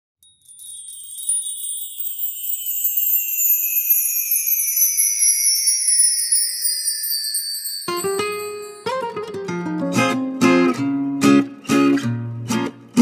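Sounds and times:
bell-like shimmer sliding downward: 0:00.4 - 0:09.3.

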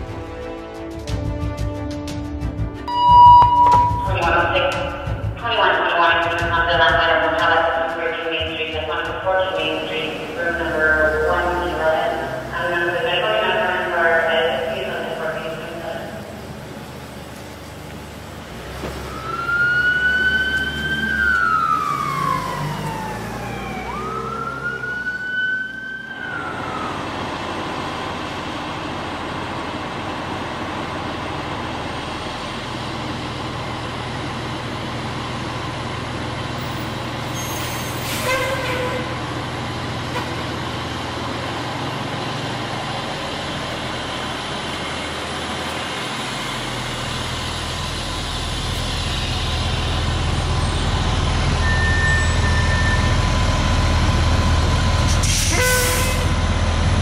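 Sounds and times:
fire truck diesel engine running: 0:00.0 - 0:57.0
ambulance siren wailing: 0:02.9 - 0:16.4, 0:19.0 - 0:28.2.

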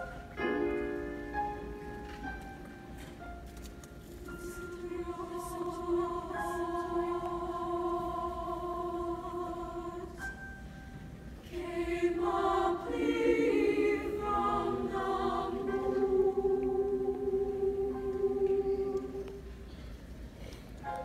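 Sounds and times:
women's choir singing: 0:04.2 - 0:10.6, 0:11.4 - 0:19.5.

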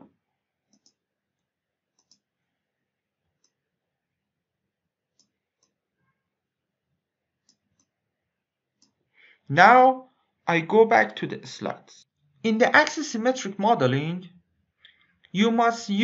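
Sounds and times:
faint computer mouse clicks: 0:00.7 - 0:01.0, 0:02.0 - 0:02.2.

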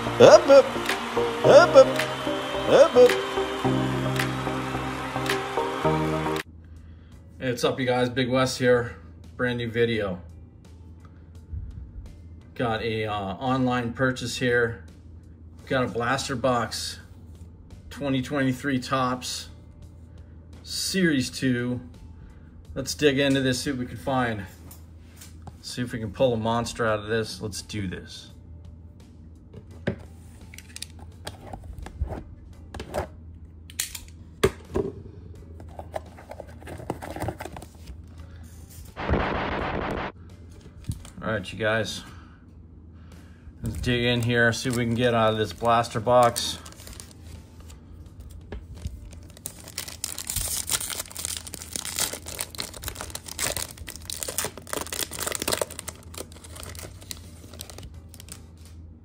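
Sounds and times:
cardboard box being opened: 0:35.6 - 0:37.9
packaging tearing and rustling: 0:43.8 - 0:47.3, 0:48.8 - 0:58.6.

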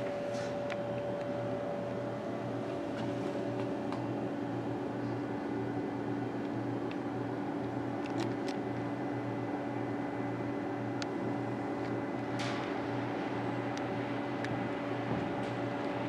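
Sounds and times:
ventilation hum: 0:00.0 - 0:16.0.

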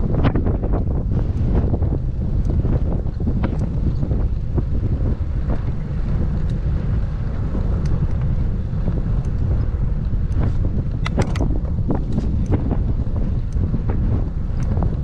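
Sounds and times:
wind buffeting microphone: 0:00.0 - 0:15.0
faint clicks: 0:07.6 - 0:13.7.

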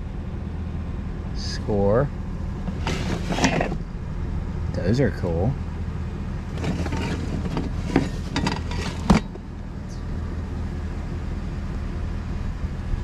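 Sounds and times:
steady low hum: 0:00.0 - 0:13.0
metal pieces clinking and rattling: 0:06.6 - 0:09.2.

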